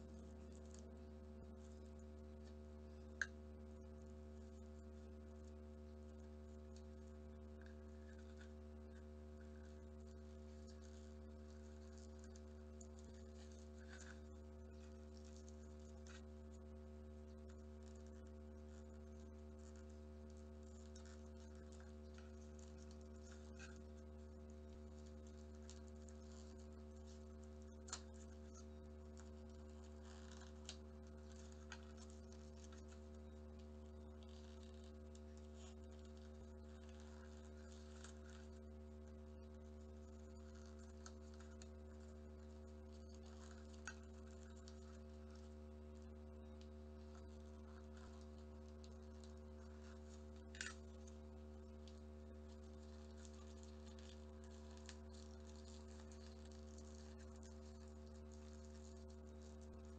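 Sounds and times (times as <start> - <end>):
steady low hum: 0.0 - 59.9
paper rustling and ticking: 6.8 - 18.2.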